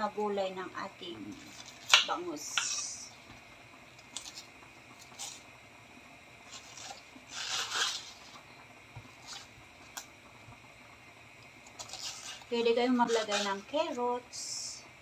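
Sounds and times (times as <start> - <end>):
leaf tearing rustle: 4.1 - 5.4, 6.4 - 8.4, 11.6 - 13.6
knife cutting cabbage leaf: 6.5 - 8.4, 11.7 - 13.6.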